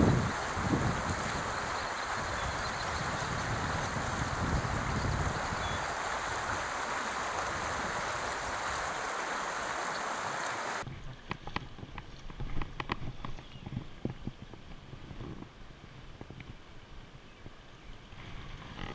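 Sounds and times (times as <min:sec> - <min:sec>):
creek water rushing over rocks: 0:00.0 - 0:10.9
small clicks and splashes: 0:04.9 - 0:14.8.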